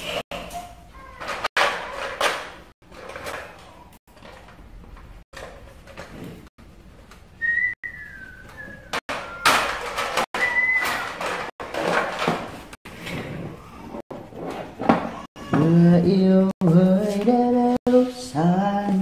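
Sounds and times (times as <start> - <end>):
high whistle sliding down: 10.4 - 11.0.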